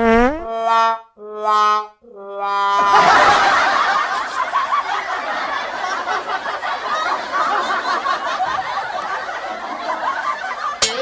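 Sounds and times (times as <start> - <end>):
group of people laughing: 2.8 - 11.0.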